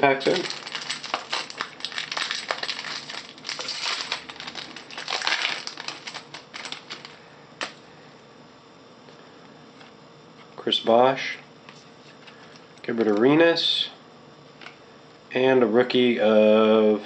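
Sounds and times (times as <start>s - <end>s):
foil wrapper tearing and crinkling: 0.2s - 7.2s.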